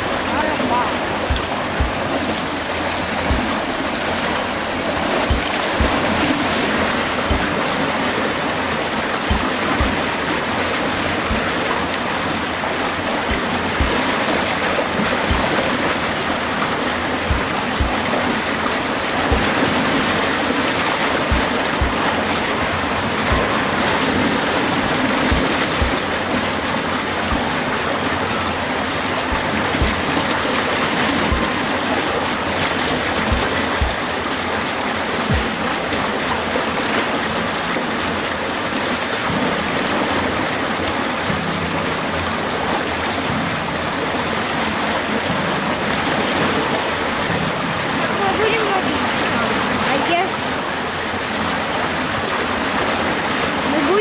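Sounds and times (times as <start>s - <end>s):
river water rushing: 0.0s - 54.0s
short low thumps: 1.2s - 8.2s, 9.3s - 12.3s, 13.3s - 18.6s, 21.2s - 26.3s, 27.3s - 27.9s, 29.3s - 30.3s, 31.3s - 31.7s, 33.2s - 34.2s.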